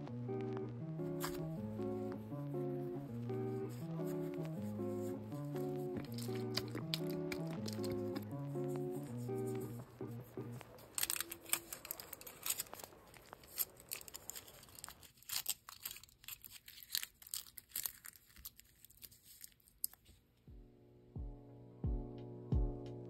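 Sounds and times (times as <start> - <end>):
aluminium foil crinkling: 1.2 - 1.5, 5.5 - 9.8, 10.5 - 20.2.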